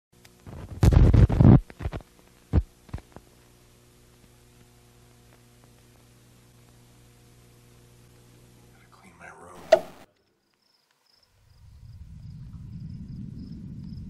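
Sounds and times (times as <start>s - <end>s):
film crackling pops: 0.2s - 7.2s.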